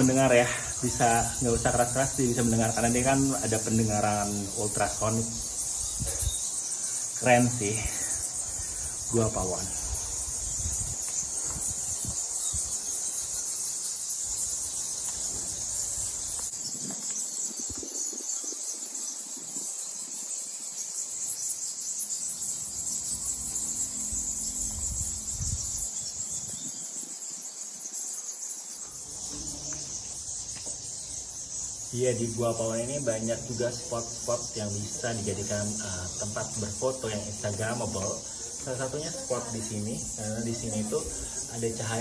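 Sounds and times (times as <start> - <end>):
bats squeaking and chattering: 0.0 - 42.0.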